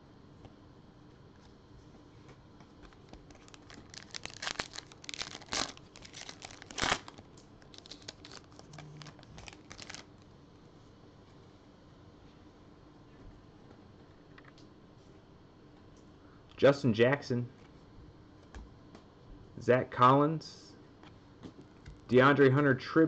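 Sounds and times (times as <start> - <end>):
foil wrapper tearing and crinkling: 3.1 - 10.2.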